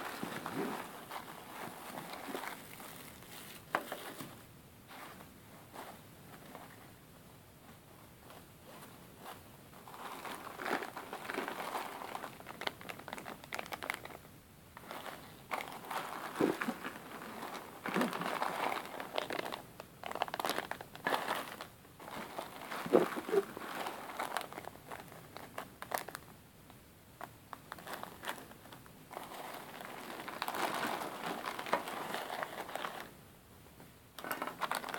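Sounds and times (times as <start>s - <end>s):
plastic bags crinkling: 1.7s - 4.2s, 9.8s - 14.2s, 14.8s - 26.2s, 27.6s - 33.1s, 34.2s - 34.9s.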